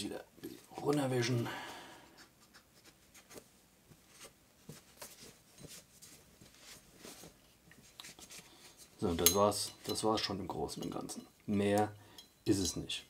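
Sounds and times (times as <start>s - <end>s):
cloth rubbing on metal: 4.1s - 10.3s.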